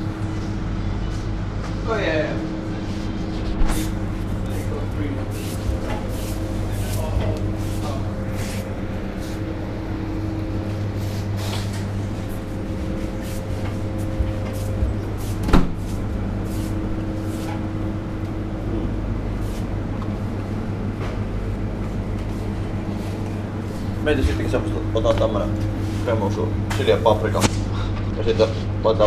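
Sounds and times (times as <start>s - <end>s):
refrigerated display cases humming: 0.0s - 29.0s.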